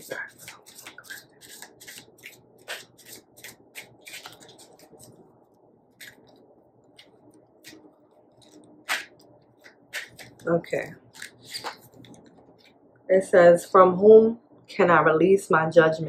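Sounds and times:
cards being shuffled: 0.0 - 5.2, 6.0 - 12.8
cards tapping and sliding: 0.1 - 5.2, 8.4 - 10.4, 11.2 - 12.2.

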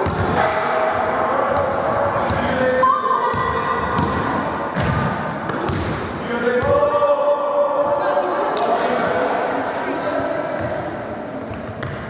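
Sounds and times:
ball bouncing on hard floor: 3.3 - 6.8, 11.5 - 12.0.

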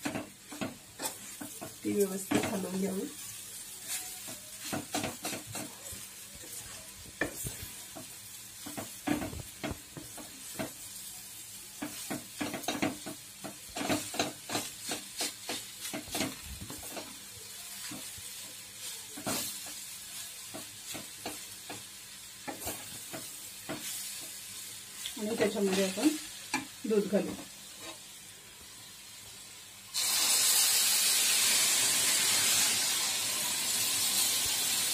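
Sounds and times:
wooden spatula scraping a pan: 0.0 - 10.9, 11.8 - 28.1
food sizzling in oil: 0.0 - 34.9.

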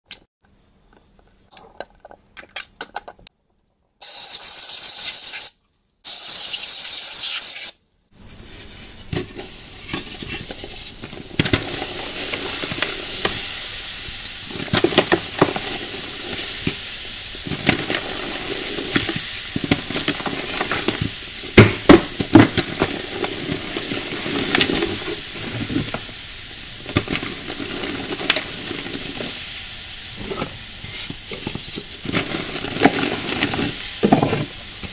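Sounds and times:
short bursts of hiss: 4.0 - 7.8
foamy fizzing: 8.7 - 34.9
powder block crunching and squelching: 31.5 - 34.6.

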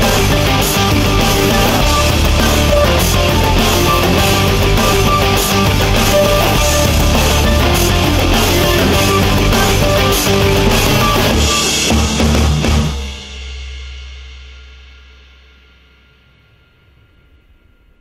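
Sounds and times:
rock music with drums and guitar: 0.0 - 13.6.

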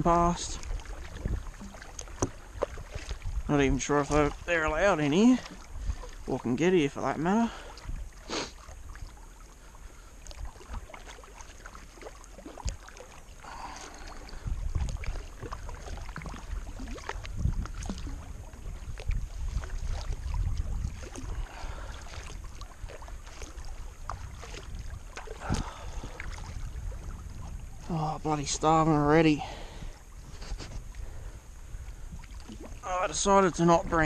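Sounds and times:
paddle splashing in water: 0.0 - 34.0
wind rumble on microphone: 0.0 - 34.0.

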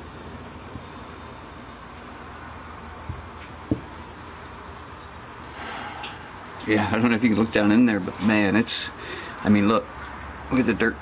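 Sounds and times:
crickets chirping: 0.0 - 11.0
light knocks: 3.1 - 3.9.

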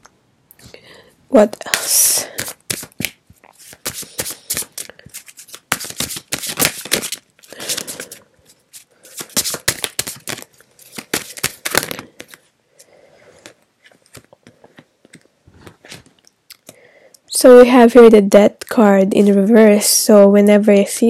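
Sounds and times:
cards being shuffled: 1.6 - 16.8.

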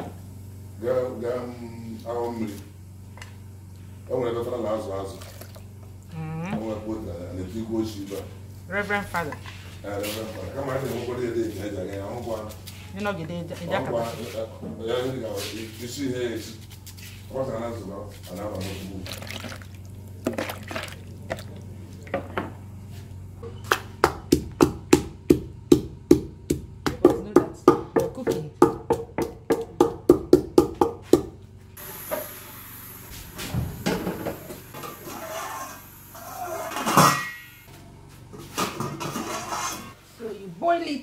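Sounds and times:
tomatoes rinsed in plastic bowl: 4.9 - 6.8, 18.3 - 22.2
wooden pestle pounding in mortar: 23.7 - 31.4
steady hiss: 31.8 - 36.8.

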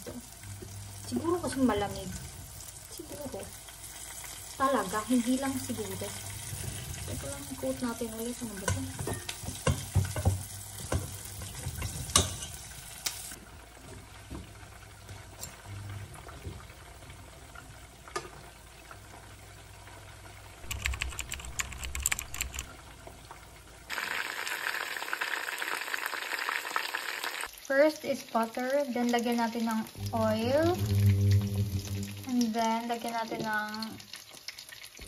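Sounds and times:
chicken frying in oil: 0.0 - 21.1, 22.7 - 31.0, 31.7 - 35.0
metal tongs clicking against pan: 8.6 - 9.8.

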